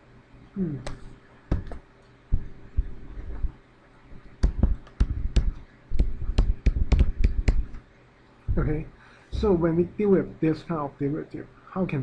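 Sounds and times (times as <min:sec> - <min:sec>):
stylus tapping on pen tablet: 0:00.9 - 0:01.8, 0:04.4 - 0:07.8.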